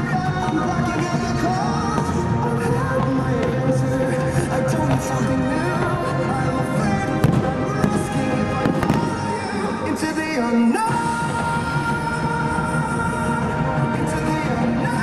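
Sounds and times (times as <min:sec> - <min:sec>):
anime song music: 0:00.0 - 0:15.0
fireworks bangs: 0:06.7 - 0:10.0.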